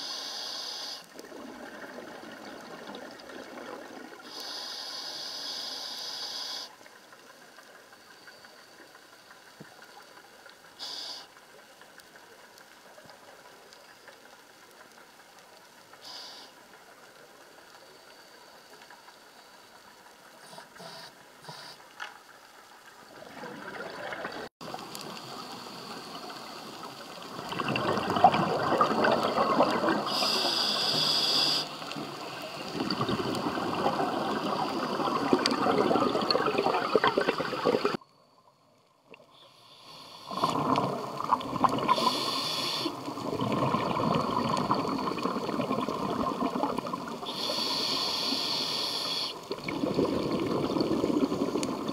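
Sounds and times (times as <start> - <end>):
scuba regulator bubbling: 23.2 - 38.0, 40.0 - 51.9.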